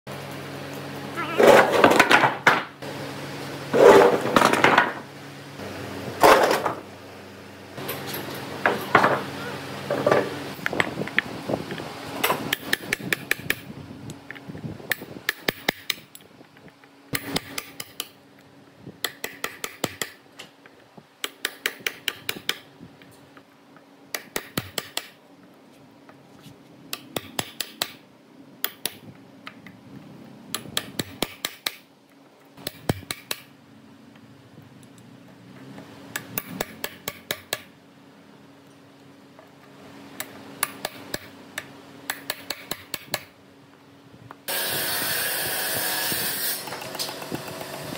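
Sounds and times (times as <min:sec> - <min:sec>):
hammer striking nails: 0:19.0 - 0:20.2, 0:24.1 - 0:25.2, 0:26.9 - 0:28.0, 0:30.6 - 0:31.8, 0:32.6 - 0:33.5, 0:36.2 - 0:37.7.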